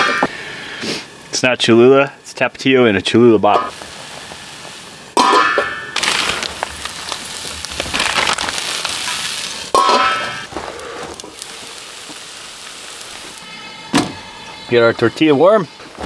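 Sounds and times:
food sizzling in skillet: 3.6 - 14.8.

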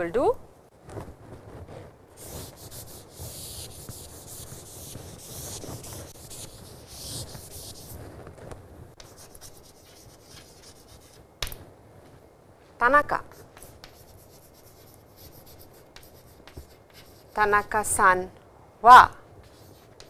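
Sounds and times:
chalk writing on board: 2.2 - 8.0, 9.0 - 11.2, 13.3 - 17.5, 19.4 - 20.0
eraser wiping chalkboard: 2.2 - 8.0, 9.0 - 11.2, 13.3 - 17.5, 19.4 - 20.0.

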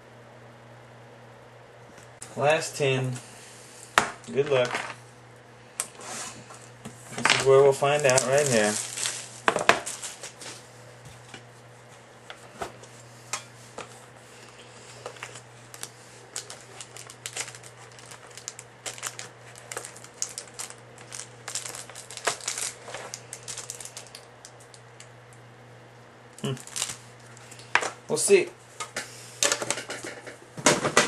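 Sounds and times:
plastic wrap crinkling: 7.2 - 10.7, 15.0 - 25.1, 26.4 - 28.0.

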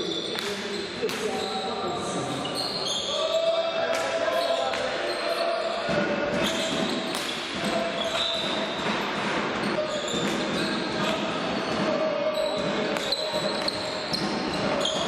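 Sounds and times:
ball hitting floor and boards: 0.3 - 1.4, 5.9 - 12.0, 12.6 - 15.0.

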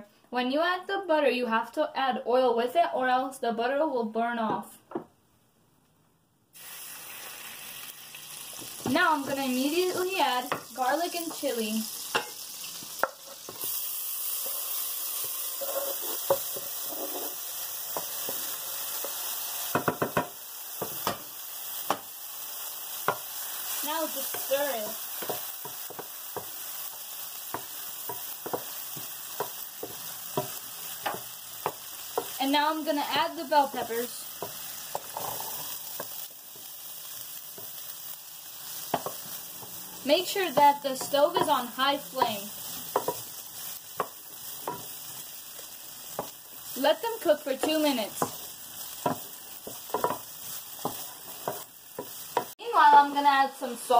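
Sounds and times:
garlic sizzling in hot oil: 6.6 - 53.9
wooden spatula knocking on pan: 19.7 - 21.2
wooden spatula knocking pan: 19.7 - 21.2, 38.9 - 39.3, 40.5 - 43.2, 49.0 - 53.2.

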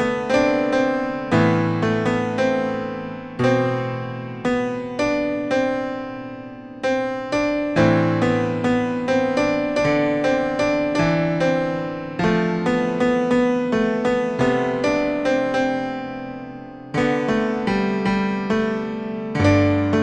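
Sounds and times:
piano music: 0.0 - 20.0.

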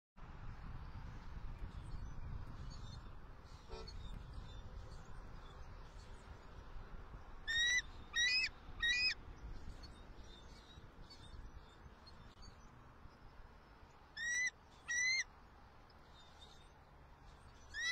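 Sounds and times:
eagle high piping calls: 7.5 - 9.2, 14.2 - 15.3, 17.7 - 17.9.

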